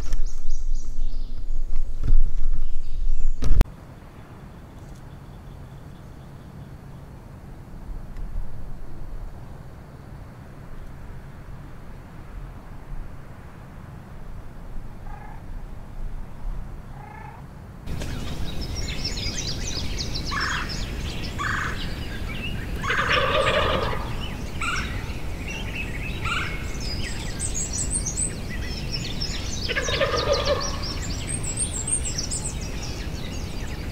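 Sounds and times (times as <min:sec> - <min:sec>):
songbirds chirping: 0:00.0 - 0:08.2, 0:15.0 - 0:33.9
turkey gobbling: 0:22.8 - 0:25.0, 0:26.2 - 0:26.7, 0:29.7 - 0:30.9.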